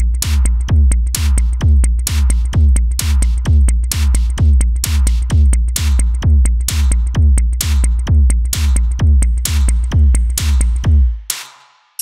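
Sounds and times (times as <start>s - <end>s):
kick drum beat: 0.0s - 11.3s.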